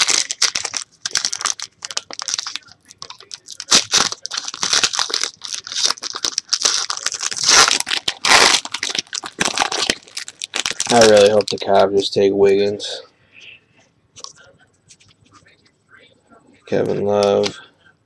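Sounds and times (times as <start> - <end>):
foil pack ripping: 0.0 - 11.8
foil pack crinkling: 0.0 - 12.8.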